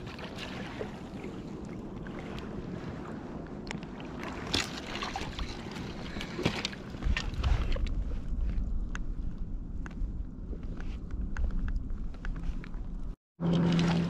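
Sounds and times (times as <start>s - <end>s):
wind rumble on microphone: 0.0s - 14.0s
water splashing and dripping: 3.7s - 8.0s.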